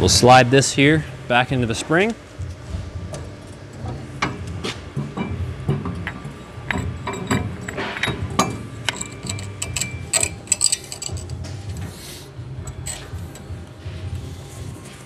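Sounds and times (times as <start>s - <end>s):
metal clinks and knocks: 5.0s - 11.6s, 12.6s - 13.6s.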